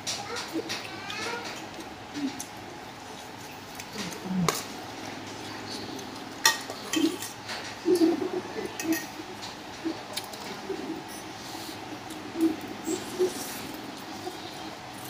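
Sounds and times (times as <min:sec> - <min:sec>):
spoons clinking on metal basin: 0:08.8 - 0:09.2.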